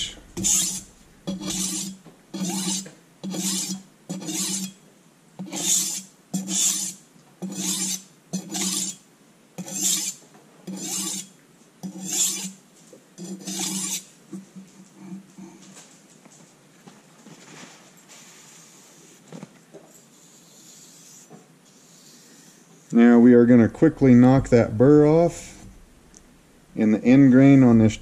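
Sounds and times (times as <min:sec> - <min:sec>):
knife scraping on sharpening stone: 0:00.0 - 0:04.8, 0:05.4 - 0:09.0, 0:09.6 - 0:12.6, 0:13.2 - 0:14.1.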